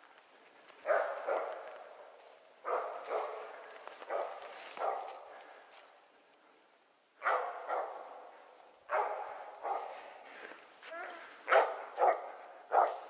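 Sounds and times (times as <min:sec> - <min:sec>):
dog barking with echo: 0:00.8 - 0:01.7, 0:02.6 - 0:05.3, 0:07.2 - 0:08.3, 0:08.9 - 0:10.0, 0:11.5 - 0:13.0.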